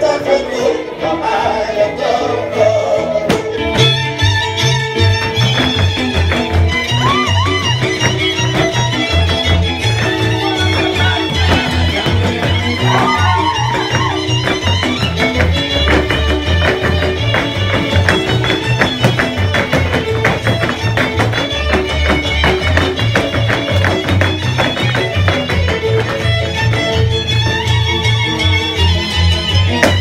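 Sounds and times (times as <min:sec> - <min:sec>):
fiddle melody: 0:00.0 - 0:30.0
rhythmic string accompaniment: 0:00.0 - 0:30.0.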